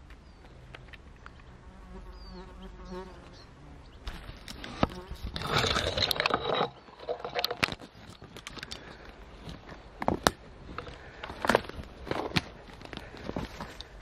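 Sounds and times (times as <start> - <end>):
fly buzzing: 1.6 - 5.6.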